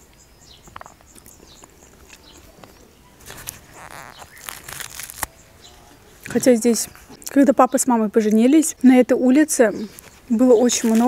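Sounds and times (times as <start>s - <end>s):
small birds chirping: 0.0s - 11.0s
bread tearing crackles: 2.0s - 7.4s.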